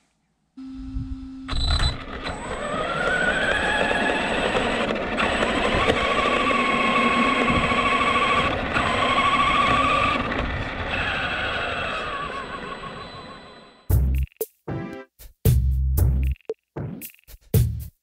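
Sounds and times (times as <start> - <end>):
rc truck motor whining: 1.5 - 13.9.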